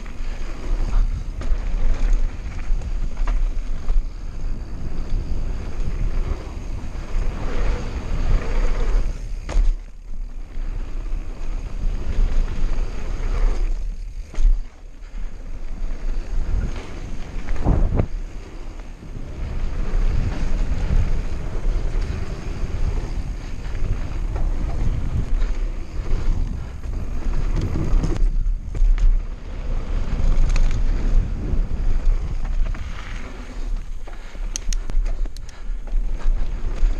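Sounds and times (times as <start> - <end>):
bike rattling: 0.0 - 36.9
tyres rolling on dirt: 0.0 - 36.9
wind buffeting microphone: 10.5 - 36.9.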